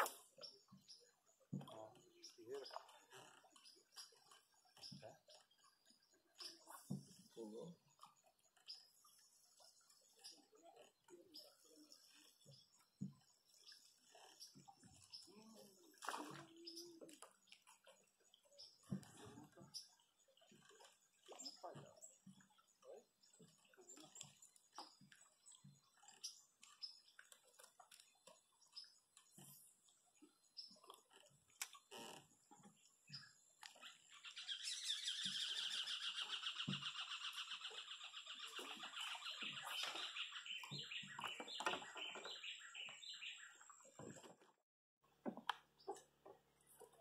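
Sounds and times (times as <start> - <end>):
birds calling: 8.6 - 44.2.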